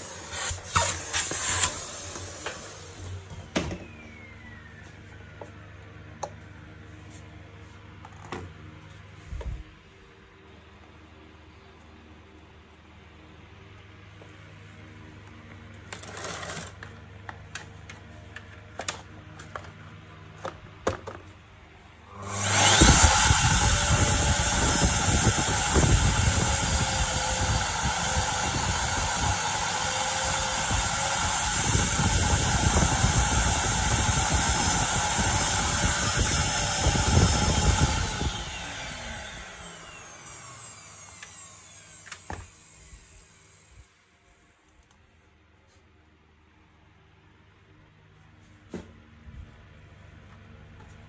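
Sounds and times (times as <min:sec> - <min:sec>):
vacuum cleaner motor whine: 0:00.0 - 0:09.8, 0:22.0 - 0:44.1.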